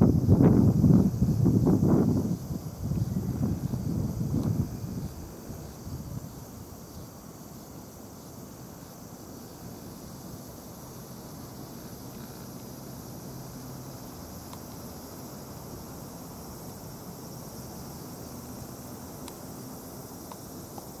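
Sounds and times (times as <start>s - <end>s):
high-pitched insect drone: 0.0s - 21.0s
faint ticks: 14.4s - 14.8s, 19.2s - 19.4s, 20.2s - 21.0s.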